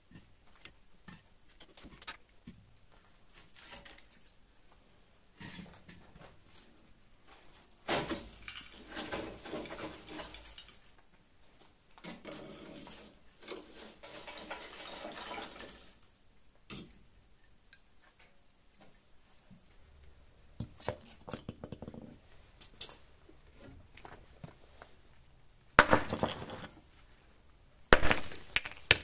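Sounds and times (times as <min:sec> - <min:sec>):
bricks and tongs scraping and clinking: 0:25.8 - 0:26.8, 0:27.9 - 0:29.0.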